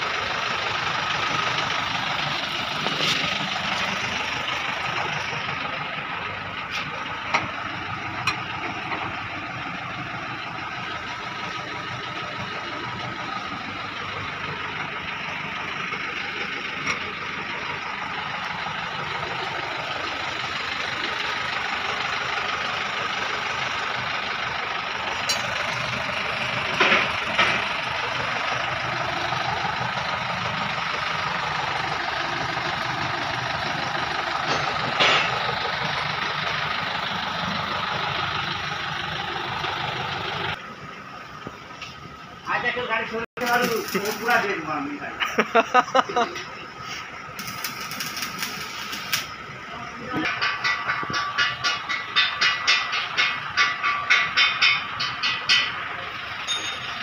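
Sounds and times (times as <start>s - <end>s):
engine idling: 0.0s - 57.0s
sharp metallic knocks: 34.4s - 35.4s, 50.2s - 57.0s.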